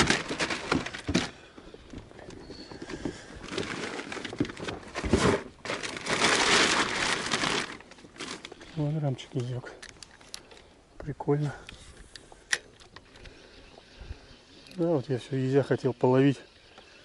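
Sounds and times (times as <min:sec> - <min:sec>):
net and gear rustling: 0:00.0 - 0:10.7.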